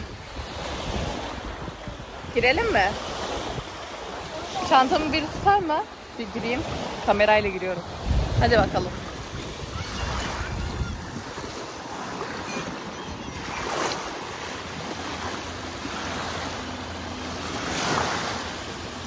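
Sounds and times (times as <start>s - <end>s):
waves lapping in shallows: 0.0s - 19.0s
wind buffeting microphone: 0.0s - 19.0s.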